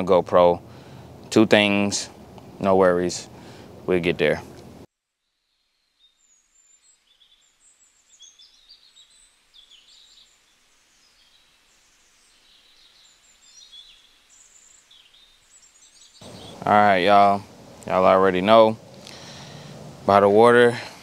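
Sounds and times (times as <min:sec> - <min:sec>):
birds chirping and trilling: 0:00.0 - 0:21.0
soft outdoor hiss: 0:00.0 - 0:21.0.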